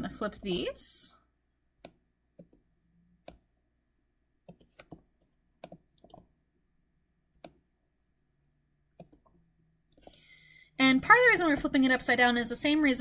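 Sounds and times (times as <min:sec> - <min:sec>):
computer mouse clicking: 0:01.8 - 0:02.6, 0:04.4 - 0:06.3, 0:07.3 - 0:07.6, 0:09.0 - 0:10.2.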